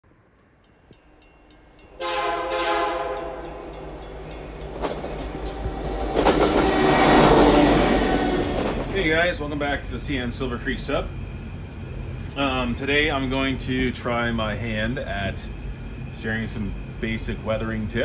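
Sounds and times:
moving train rumble: 0.6s - 18.0s
locomotive air horn: 2.0s - 3.8s, 6.4s - 8.8s.

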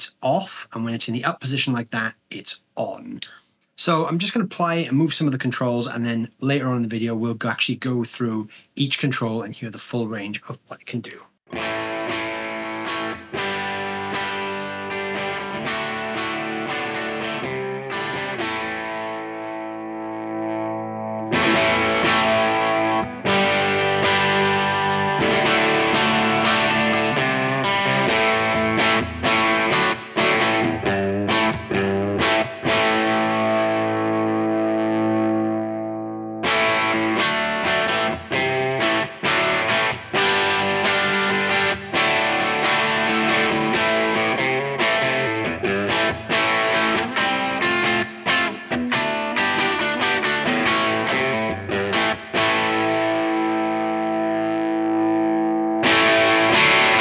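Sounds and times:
overdriven electric guitar: 11.5s - 57.0s.

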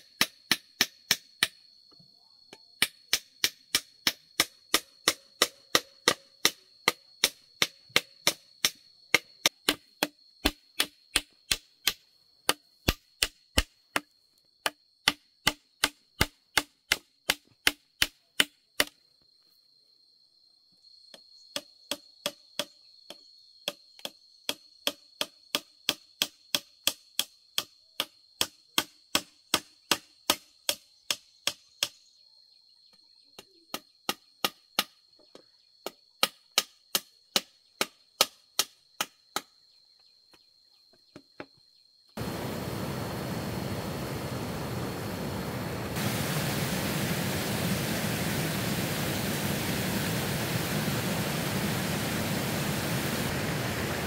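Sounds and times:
high insect drone: 39.6s - 54.0s.

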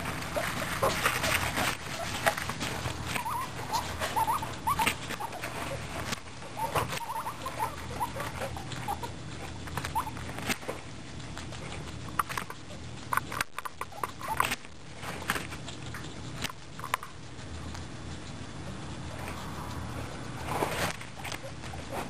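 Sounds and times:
guinea pig squeaks: 0.0s - 22.0s
guinea pigs gnawing carrot: 0.0s - 22.0s.

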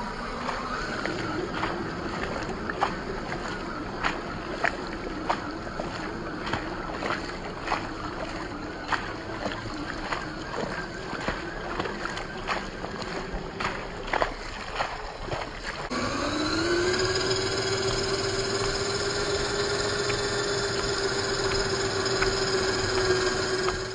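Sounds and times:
electric motor whine: 0.0s - 12.0s, 15.9s - 23.9s
rain and splashing water: 0.0s - 23.9s
water spray from tyres: 0.0s - 23.9s.

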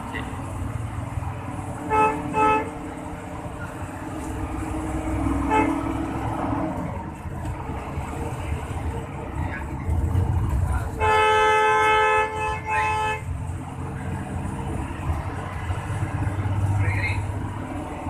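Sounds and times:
bus engine rumble: 0.0s - 18.0s
road noise: 0.0s - 18.0s
bus horn toots: 1.8s - 2.9s, 5.4s - 6.1s, 10.9s - 13.4s.

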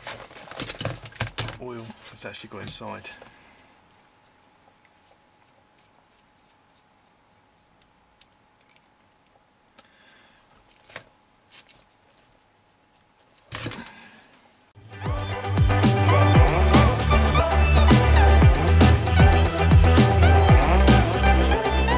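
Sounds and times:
faint steady hum: 0.0s - 14.8s.

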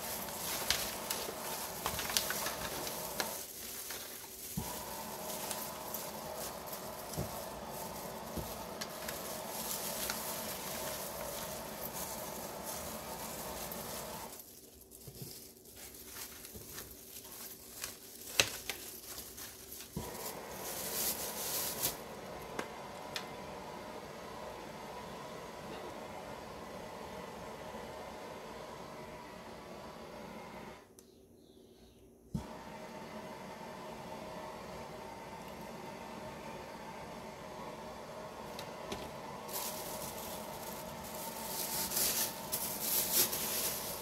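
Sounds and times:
foil pan rustling: 0.0s - 22.0s, 39.5s - 44.0s
plastic gloves crinkling: 0.0s - 22.1s, 38.9s - 44.0s.

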